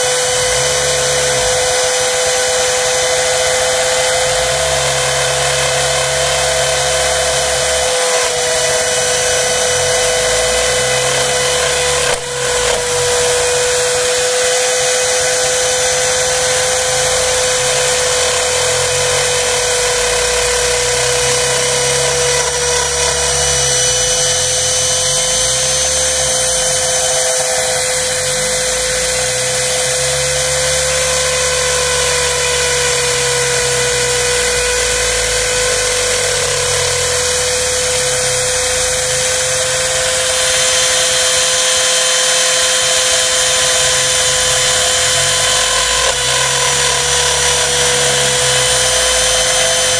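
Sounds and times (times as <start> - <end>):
router spindle high whine: 0.0 - 49.9.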